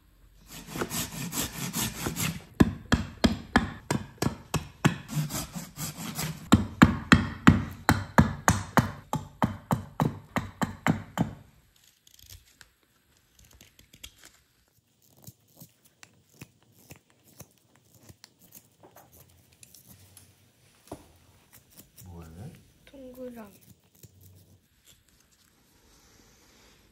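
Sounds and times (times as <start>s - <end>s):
carving knife shaving wood: 0.4s - 20.2s, 21.4s - 25.6s
hand saw cutting branch: 0.5s - 2.5s, 5.0s - 6.6s.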